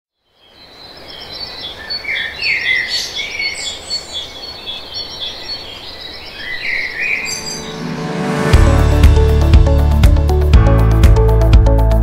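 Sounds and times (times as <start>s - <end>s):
steady background hiss: 0.2s - 7.6s
birds chirping and trilling: 0.2s - 8.5s.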